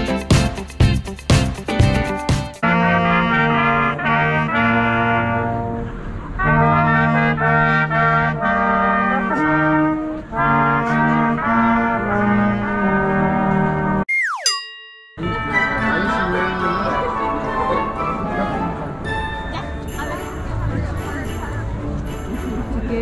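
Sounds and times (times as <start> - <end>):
brass band playing carol: 2.6 - 14.0, 15.2 - 19.5.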